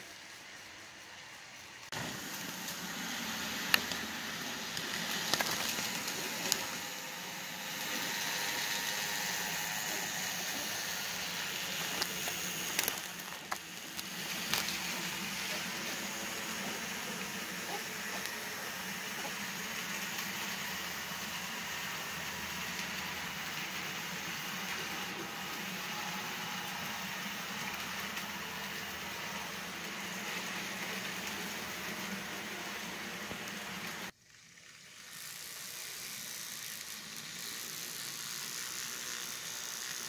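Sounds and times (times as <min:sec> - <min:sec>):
model train wheels rattling: 0:07.8 - 0:26.0, 0:34.2 - 0:40.0.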